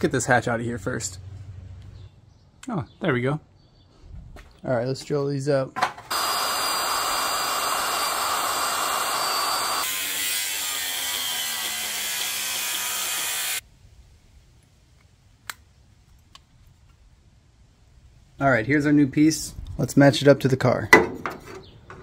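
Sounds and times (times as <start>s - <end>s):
angle grinder grinding metal: 6.1s - 13.6s
electric drill whining: 6.1s - 13.6s.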